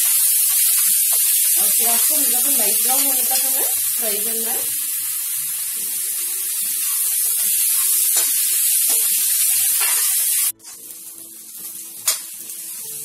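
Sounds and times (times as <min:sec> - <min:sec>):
onions sizzling in hot oil: 0:00.0 - 0:13.0
spoon scraping a pan: 0:09.7 - 0:10.9.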